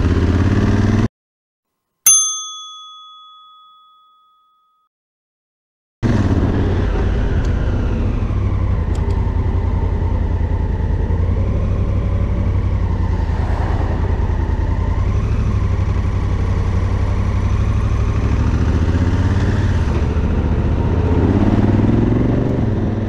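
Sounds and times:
vehicle engine moving off: 6.0s - 23.0s.

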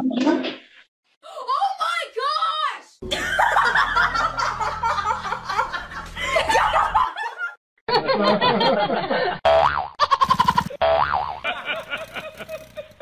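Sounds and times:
people laughing and snickering: 3.0s - 9.4s, 11.4s - 13.0s.

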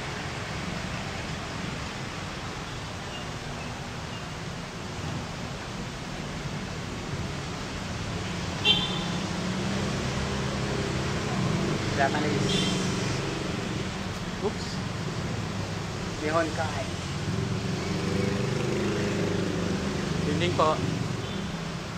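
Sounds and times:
city background hum: 0.0s - 21.9s
road traffic: 0.0s - 21.9s.

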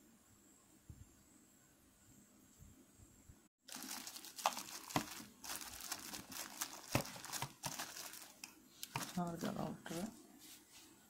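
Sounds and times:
plastic packaging crinkling: 3.6s - 9.7s.

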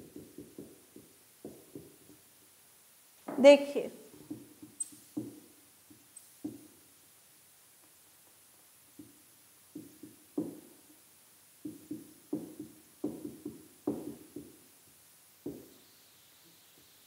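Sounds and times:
marker tapping on a whiteboard: 0.0s - 2.3s, 4.1s - 6.8s, 8.9s - 11.0s, 11.6s - 14.7s, 15.4s - 15.8s.

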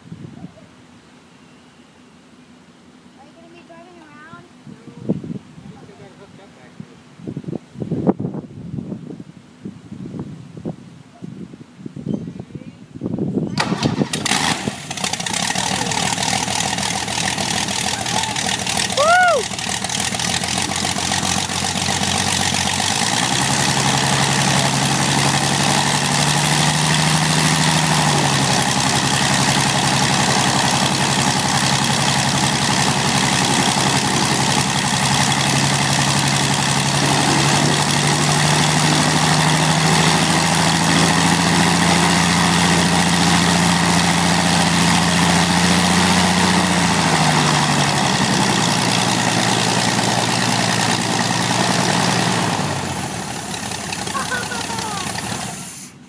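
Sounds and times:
propeller aircraft engine running: 13.5s - 56.0s.

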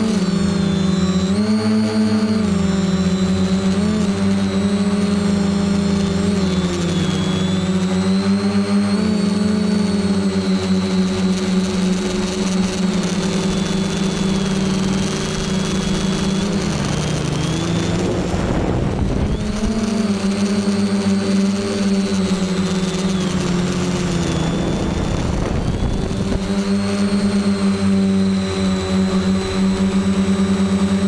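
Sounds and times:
drone propellers droning: 0.0s - 31.0s
wind buffeting microphone: 17.5s - 20.1s, 23.7s - 27.4s.

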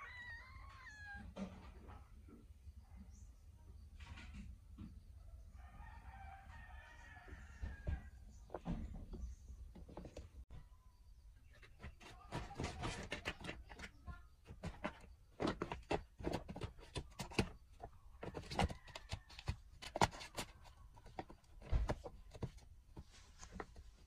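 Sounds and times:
objects being handled: 11.4s - 24.0s.

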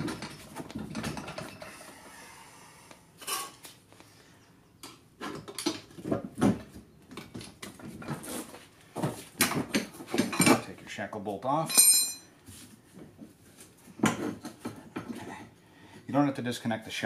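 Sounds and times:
wrench and bolt metallic clinks: 11.7s - 12.3s.

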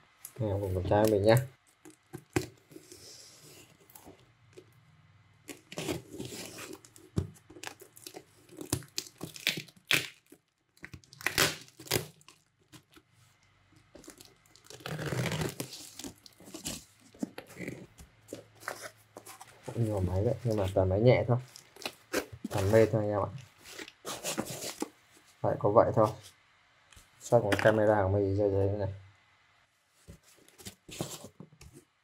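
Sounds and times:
plastic wrapping ripping: 5.5s - 13.0s, 14.0s - 16.8s.

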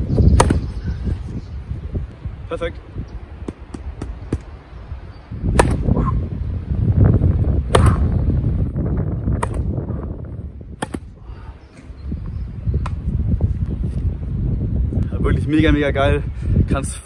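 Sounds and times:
wind buffeting microphone: 0.0s - 17.0s
tennis ball pops: 0.3s - 0.7s, 5.5s - 5.9s, 7.7s - 8.1s, 9.4s - 9.7s, 10.8s - 11.1s.

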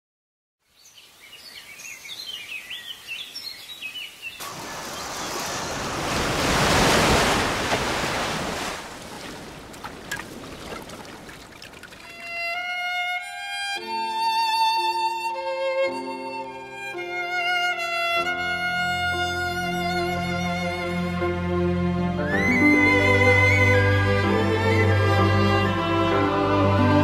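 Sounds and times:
birds chirping: 0.6s - 6.2s
sea wave breaking: 4.4s - 12.4s
music with violin: 12.1s - 27.0s.

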